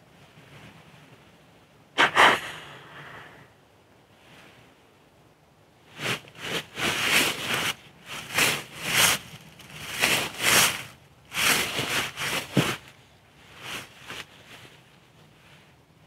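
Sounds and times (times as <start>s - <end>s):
footsteps through leaf litter: 6.0s - 12.9s.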